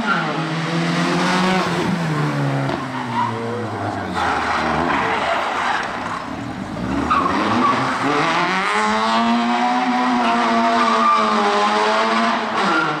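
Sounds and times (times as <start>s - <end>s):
rally car engine revving: 0.0s - 13.0s
tyres squealing: 2.6s - 8.2s.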